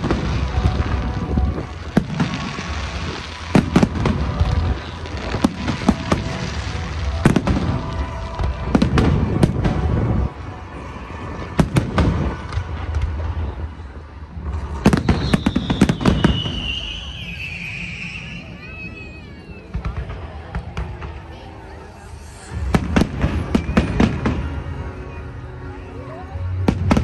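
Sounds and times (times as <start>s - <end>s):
fireworks bangs and crackles: 0.0s - 27.0s
firework whistle sliding down: 14.9s - 19.8s.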